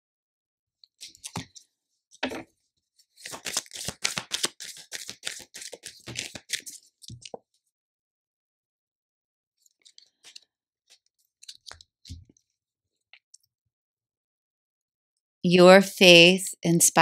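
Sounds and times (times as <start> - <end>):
cards being shuffled: 1.0 - 1.6, 3.1 - 7.4, 11.4 - 12.2
cards tapping and sliding: 3.2 - 7.4.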